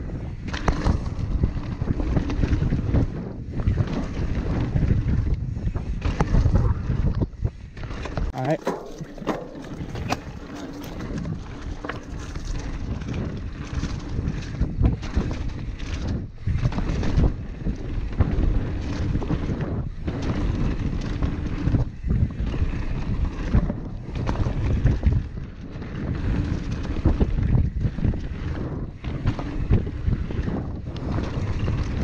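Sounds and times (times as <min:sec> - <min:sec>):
bike knocks and rattles: 0:00.0 - 0:32.0
wind buffeting microphone: 0:00.0 - 0:32.0.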